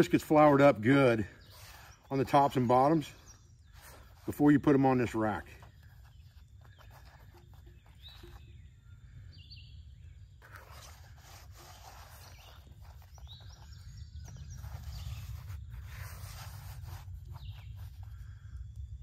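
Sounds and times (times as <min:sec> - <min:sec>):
bird chirps: 0:01.3 - 0:11.0, 0:11.6 - 0:16.3.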